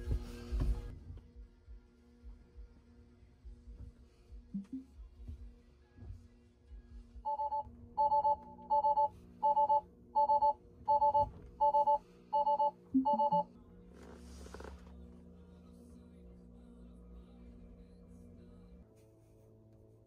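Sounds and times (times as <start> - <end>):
two-tone alert chime beeping: 7.3 - 13.4.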